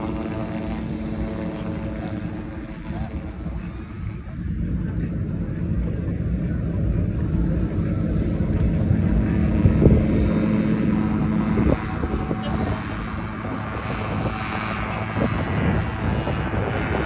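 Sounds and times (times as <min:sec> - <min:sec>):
propeller airplane engine drone: 0:00.0 - 0:17.0
wind buffeting microphone: 0:00.0 - 0:17.0.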